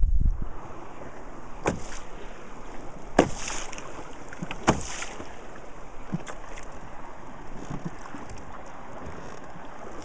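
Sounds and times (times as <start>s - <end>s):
paddle splashes: 0.5s - 10.0s
water hiss: 1.6s - 5.7s.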